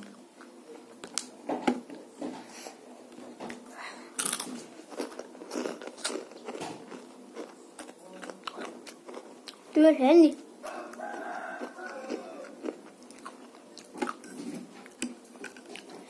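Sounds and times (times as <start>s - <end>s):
child chewing with wet smacks: 4.2s - 16.0s.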